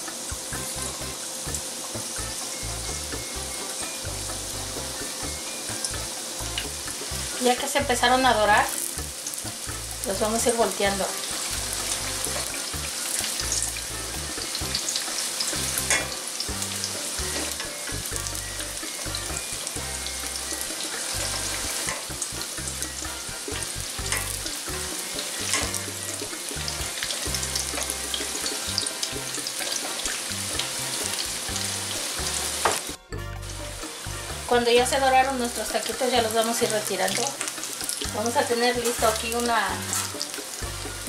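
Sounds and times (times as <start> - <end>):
oil sizzling in a skillet: 0.0 - 41.0.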